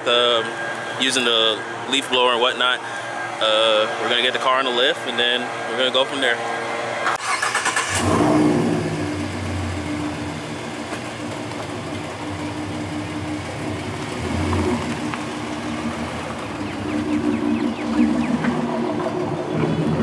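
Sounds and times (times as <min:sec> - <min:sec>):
car engine starting and idling: 0:07.0 - 0:20.0.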